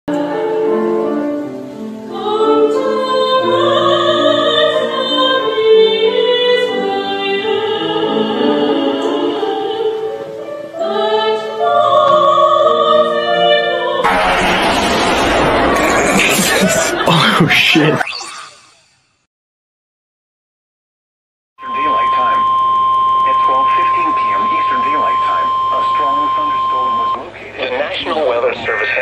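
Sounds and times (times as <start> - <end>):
choir singing held notes: 0.1 - 17.8.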